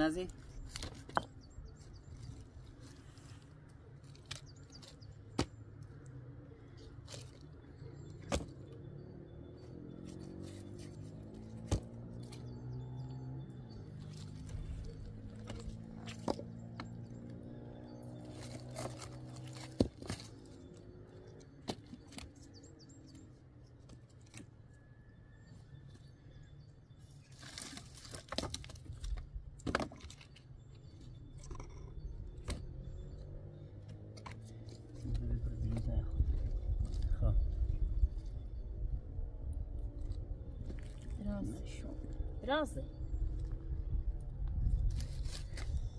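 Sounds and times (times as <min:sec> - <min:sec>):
brushwood rustling: 0:00.0 - 0:08.7, 0:10.0 - 0:12.6, 0:13.8 - 0:24.7, 0:27.1 - 0:38.1, 0:44.5 - 0:45.9
dry branches snapping: 0:03.4 - 0:06.0, 0:18.2 - 0:20.6.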